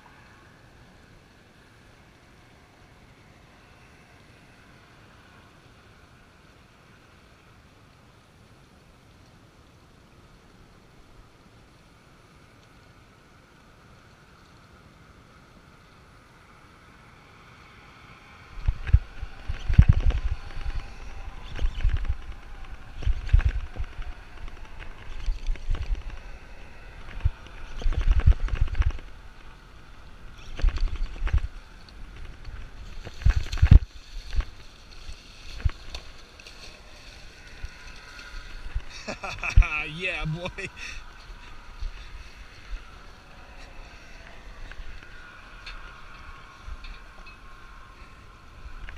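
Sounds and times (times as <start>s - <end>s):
faint motor hum: 0.0s - 48.9s
camera microphone buffeting thumps: 18.6s - 26.2s, 27.0s - 29.1s, 30.4s - 31.5s, 32.1s - 34.6s.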